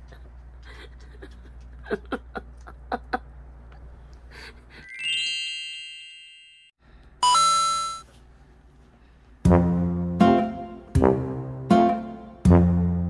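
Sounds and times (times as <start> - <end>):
bright chime sound effect: 4.9 - 8.0.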